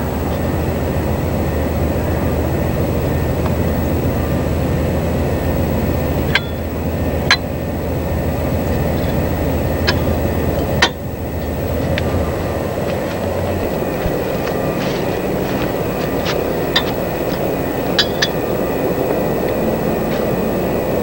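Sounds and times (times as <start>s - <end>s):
low rumbling background noise: 0.0s - 21.0s
wrench clinking on metal: 6.3s - 7.5s, 8.8s - 11.6s, 15.7s - 18.8s.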